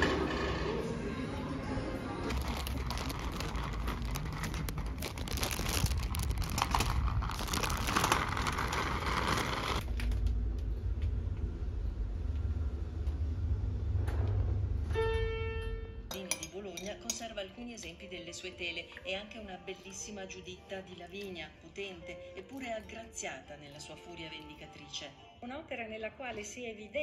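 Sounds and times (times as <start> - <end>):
low steady rumble: 2.0 - 16.1
plastic bag crinkling: 2.3 - 9.8.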